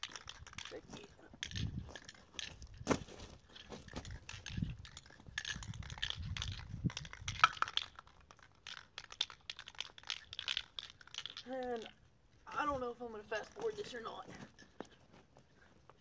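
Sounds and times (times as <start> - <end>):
footsteps on gravel: 0.0 - 4.6
spray paint can clinking: 3.9 - 11.9.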